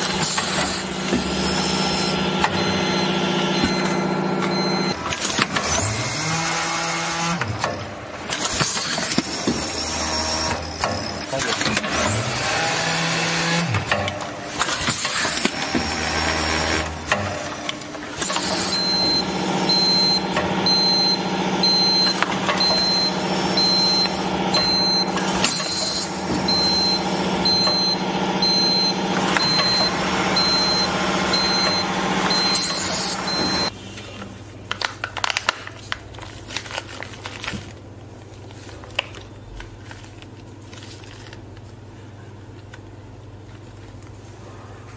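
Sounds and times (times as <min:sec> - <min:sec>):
machine motor hum: 0:00.0 - 0:33.7
short high beep: 0:18.7 - 0:33.7.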